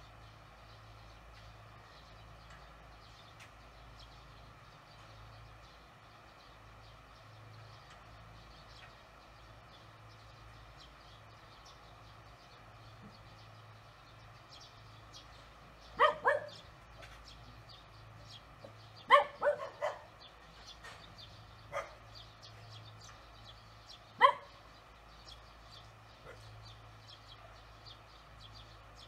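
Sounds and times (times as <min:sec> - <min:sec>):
dog barking: 0:16.0 - 0:16.6, 0:19.1 - 0:20.1, 0:21.7 - 0:22.1, 0:24.2 - 0:24.6, 0:26.2 - 0:26.5.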